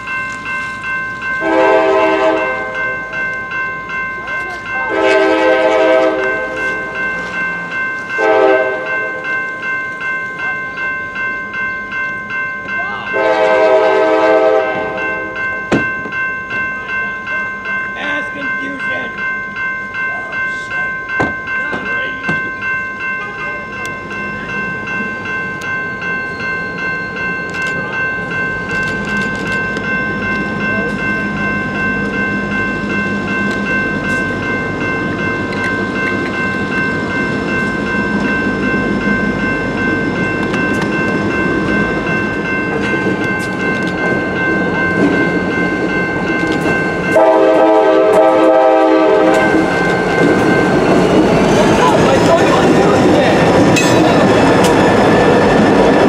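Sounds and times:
crossing bell ringing: 0.0 - 56.0
locomotive air horn: 1.4 - 2.8, 4.9 - 6.5, 8.2 - 8.9, 13.2 - 15.2, 47.2 - 49.6
locomotive engine rumble: 21.6 - 56.0.

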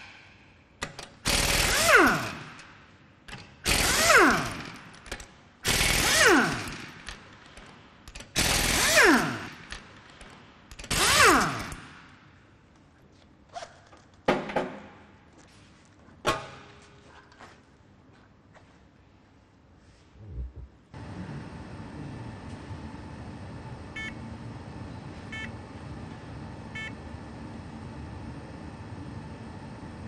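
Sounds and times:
impact wrench hammering bolts: 0.0 - 12.1.

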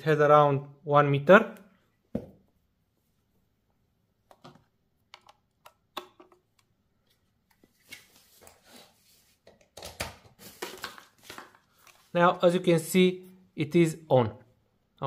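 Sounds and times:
plastic clicks and knocks: 4.3 - 6.7.

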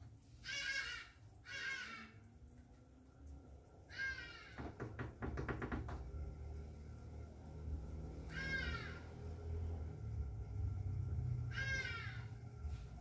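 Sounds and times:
low motor hum: 4.8 - 13.0.

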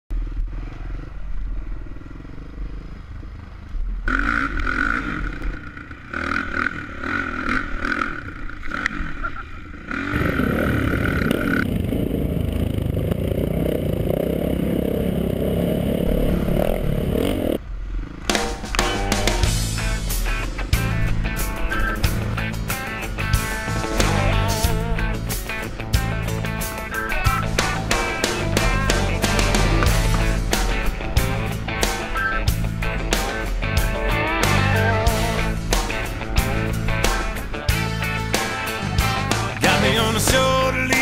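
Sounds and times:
motorcycle engines revving: 0.1 - 41.0
steady high whine: 9.2 - 41.0.

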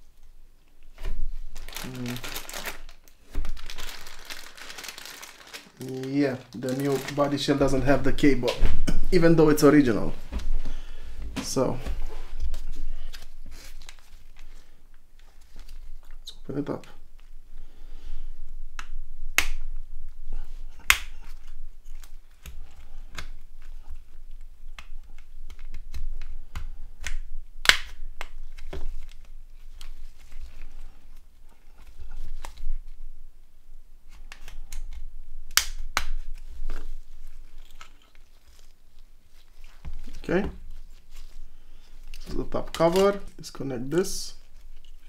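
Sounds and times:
plastic clicks and snaps: 34.1 - 36.2.

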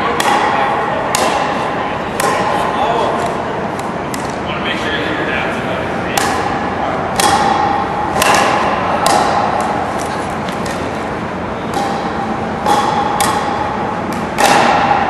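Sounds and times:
paddles striking balls: 0.0 - 4.4, 6.1 - 15.0
steady background hum: 0.0 - 15.0.

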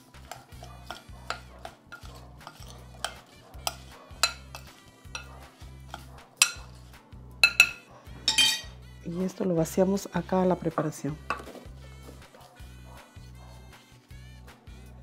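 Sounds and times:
spoon stirring apple pieces: 0.0 - 8.6, 10.3 - 12.4
spoon clinking on glass: 0.3 - 6.6, 7.4 - 8.8.

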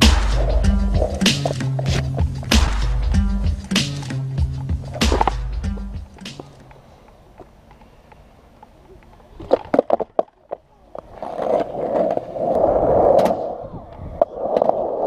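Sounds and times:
skateboard clacking on ground: 0.0 - 2.7, 6.1 - 13.5
skateboard wheels rolling: 0.0 - 15.0.

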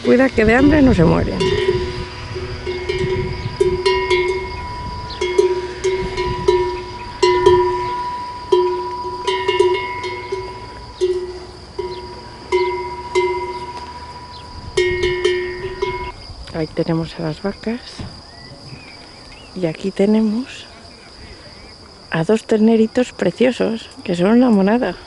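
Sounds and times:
cowbell clanking: 0.0 - 16.2.

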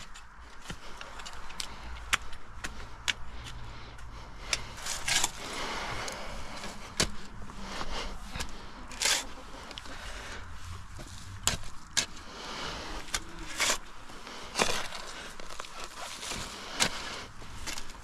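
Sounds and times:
rustling background: 0.0 - 18.0
shovel scraping into soil: 4.5 - 18.0.

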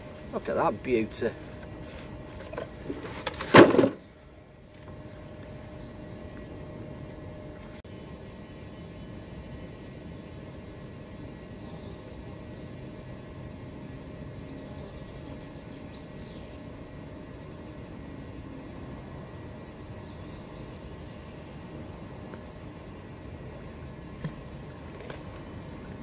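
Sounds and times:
outdoor background rumble: 0.0 - 26.0
small birds chirping: 8.4 - 23.0.

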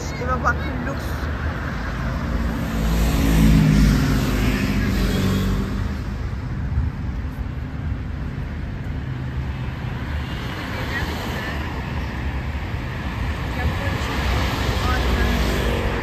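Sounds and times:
steady traffic noise: 0.0 - 16.0
car driving past: 1.8 - 6.3.

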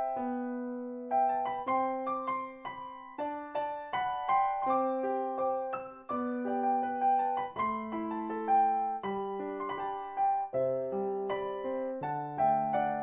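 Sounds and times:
electric piano music: 0.0 - 13.0.

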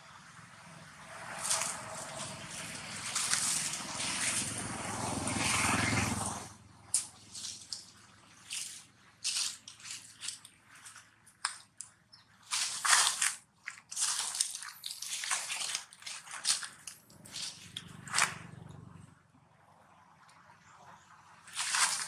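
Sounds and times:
dry leaves rustling and crackling: 1.0 - 6.2, 6.9 - 18.6, 21.5 - 22.0.

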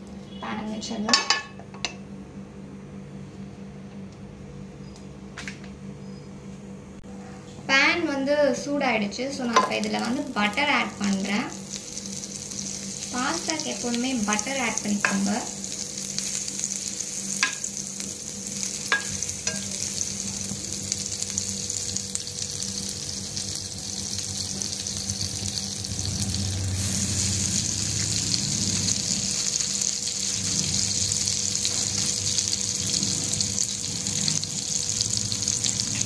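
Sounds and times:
butter sizzling in a frying pan: 9.5 - 36.0.

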